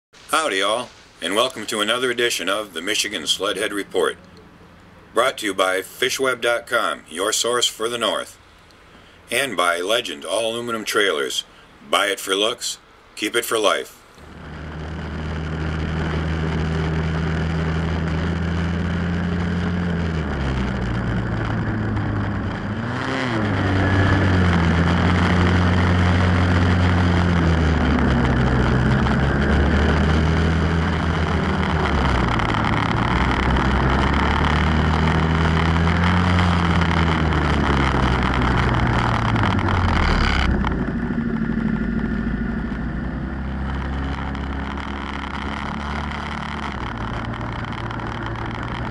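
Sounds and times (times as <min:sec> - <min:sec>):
steady rushing noise: 0:00.2 - 0:04.1, 0:14.2 - 0:48.9
snowmobile engine revving: 0:00.3 - 0:04.2, 0:05.2 - 0:08.4, 0:14.2 - 0:48.9.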